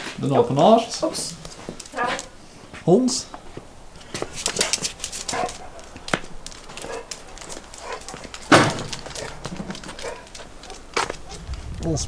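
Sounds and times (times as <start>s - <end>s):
dog barking and yipping: 1.8s - 2.4s, 4.4s - 11.5s.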